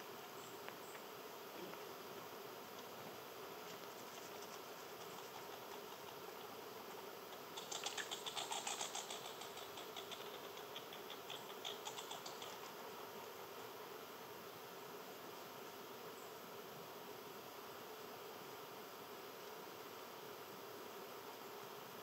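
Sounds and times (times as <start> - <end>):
insects buzzing: 0.0 - 22.0
squirrel clicking and scratching: 3.9 - 6.2, 7.3 - 12.8.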